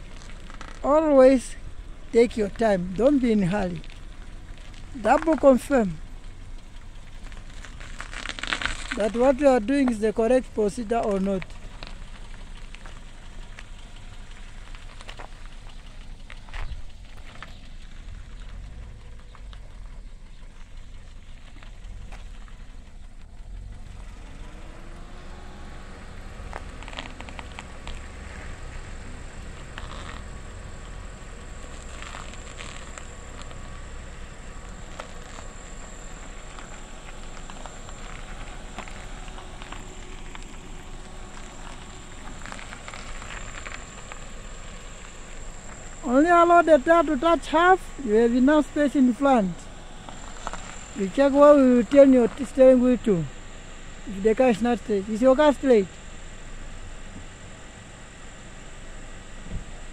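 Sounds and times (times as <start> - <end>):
light crackles and clicks: 0.0 - 0.9, 3.2 - 10.1, 10.7 - 23.5, 26.4 - 46.1
car creeping at low speed: 0.0 - 59.9
outdoor noise hiss: 0.0 - 59.9.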